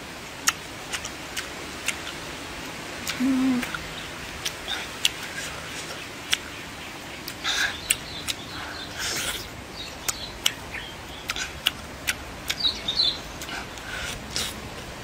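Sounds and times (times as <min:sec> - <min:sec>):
mouth and teeth clicks: 0:00.4 - 0:02.2, 0:03.0 - 0:03.8, 0:04.4 - 0:06.5, 0:13.4 - 0:14.6
slurping fruit pulp: 0:13.4 - 0:14.6.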